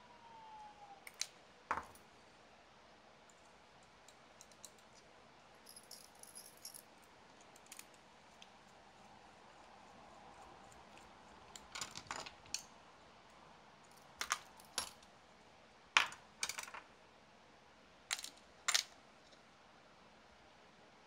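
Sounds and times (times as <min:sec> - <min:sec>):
small parts clicking and clinking: 0:01.1 - 0:02.0, 0:03.8 - 0:05.0, 0:05.6 - 0:08.8, 0:10.6 - 0:12.7, 0:13.9 - 0:15.1, 0:16.0 - 0:16.8, 0:18.1 - 0:19.0.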